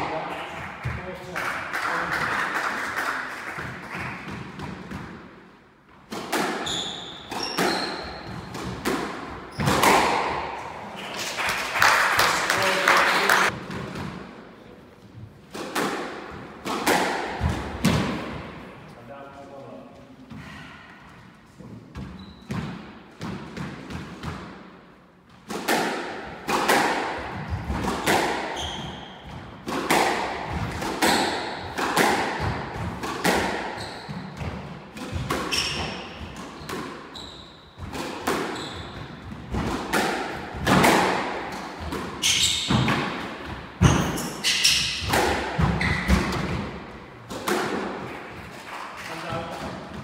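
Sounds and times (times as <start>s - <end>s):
squash ball hits: 6.0s - 10.8s, 15.5s - 18.6s, 25.4s - 37.0s, 37.8s - 50.0s
shoes squeaking on wooden floor: 6.6s - 8.6s, 22.0s - 22.6s, 33.8s - 34.4s, 35.2s - 37.8s, 38.5s - 39.2s, 41.8s - 42.9s.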